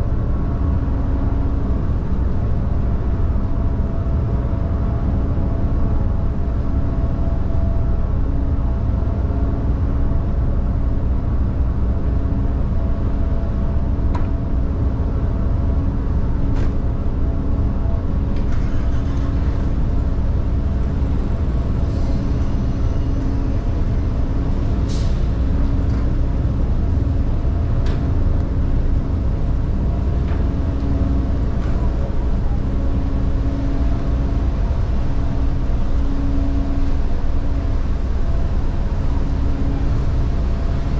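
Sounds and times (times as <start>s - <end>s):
ship engines rumbling: 11.3s - 40.9s.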